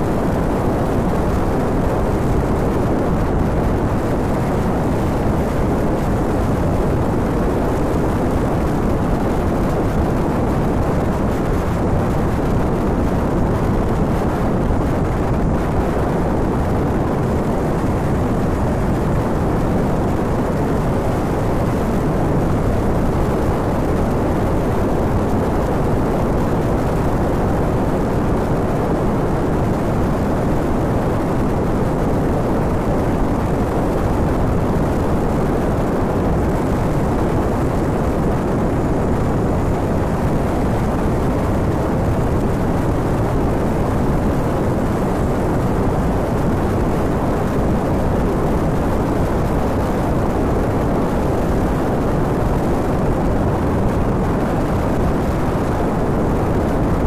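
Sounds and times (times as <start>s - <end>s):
wind and road noise: 0.0s - 57.0s.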